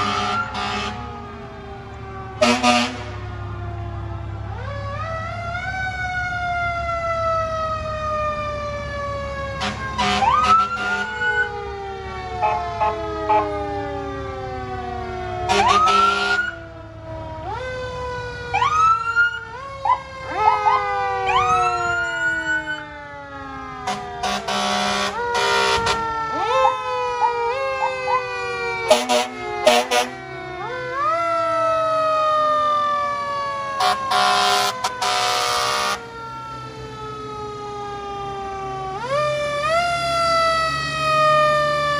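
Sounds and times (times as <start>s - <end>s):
loud horn blasts: 0.0s - 1.1s, 2.4s - 3.2s, 9.6s - 11.2s, 12.4s - 13.5s, 15.5s - 16.5s, 23.8s - 26.1s, 28.8s - 30.2s, 33.8s - 36.0s
emergency vehicle sirens: 0.0s - 41.9s.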